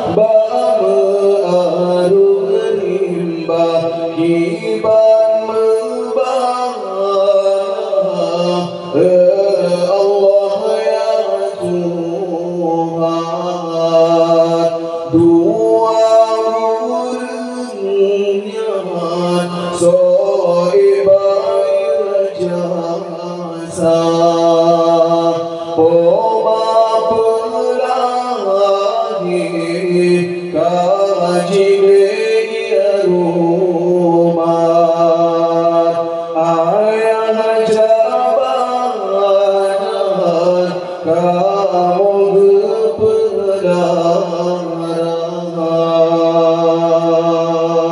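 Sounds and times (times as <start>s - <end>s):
man singing into a microphone: 0.0s - 47.9s.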